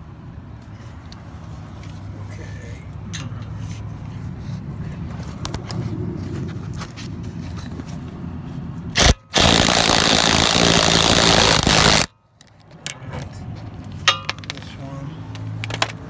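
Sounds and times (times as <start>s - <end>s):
power wrench tightening bolt: 9.0s - 12.1s.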